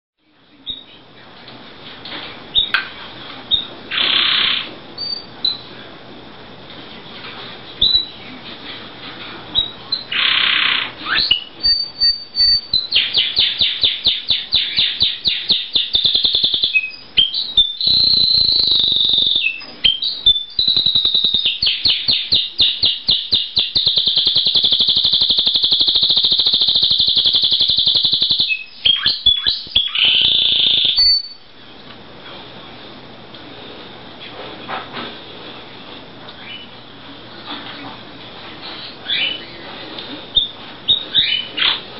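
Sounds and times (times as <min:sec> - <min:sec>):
canary singing: 0:00.6 - 0:01.1, 0:02.5 - 0:02.8, 0:03.5 - 0:05.7, 0:07.8 - 0:08.2, 0:09.5 - 0:31.5, 0:36.4 - 0:36.8, 0:38.6 - 0:39.7, 0:40.3 - 0:41.9.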